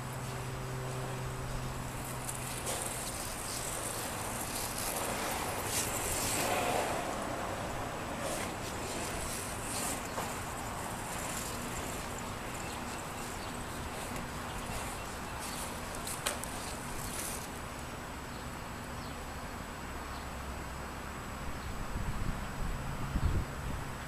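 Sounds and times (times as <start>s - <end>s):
skateboard wheels rolling on asphalt: 0.0s - 18.2s.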